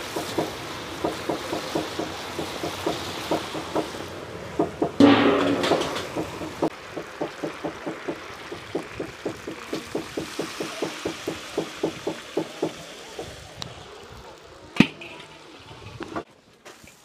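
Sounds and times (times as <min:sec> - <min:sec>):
liquid pouring hiss: 0:00.0 - 0:17.0
metal clank: 0:05.0 - 0:06.7.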